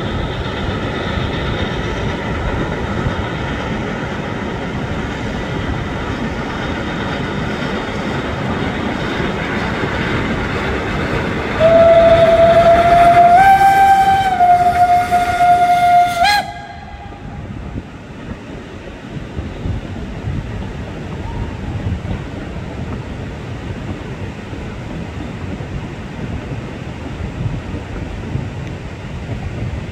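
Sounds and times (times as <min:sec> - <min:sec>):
steam locomotive running past: 0:00.0 - 0:29.9
train wheels rattling on rail: 0:00.0 - 0:29.9
steam whistle blast: 0:11.6 - 0:17.4.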